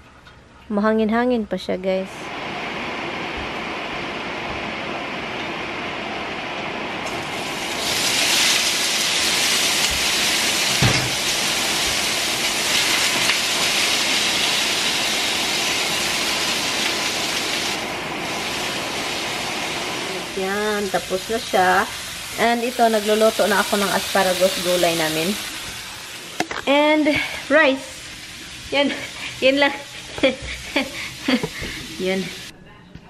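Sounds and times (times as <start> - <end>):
vent fan humming: 0.0 - 33.0
vegetables sizzling in hot oil: 7.0 - 32.5.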